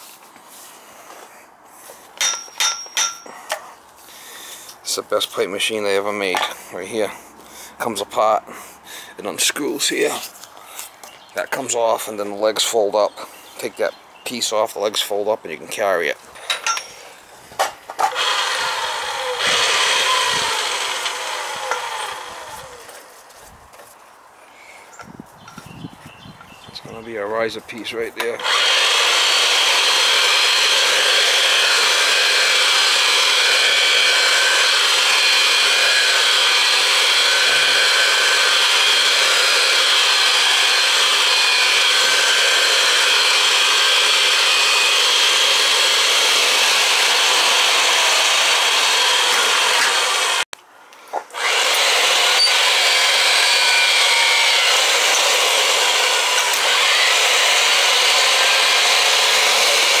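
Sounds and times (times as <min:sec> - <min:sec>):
pipe threading machine running: 0:18.1 - 0:22.8, 0:28.4 - 0:50.4, 0:51.4 - 1:00.0.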